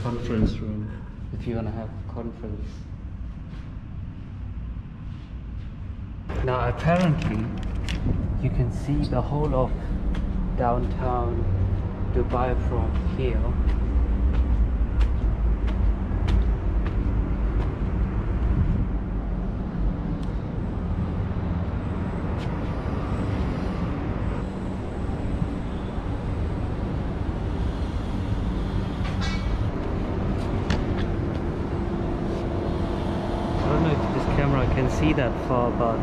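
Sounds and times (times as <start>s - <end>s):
low outdoor rumble: 0.0s - 36.0s
footsteps climbing stairs: 9.0s - 19.0s.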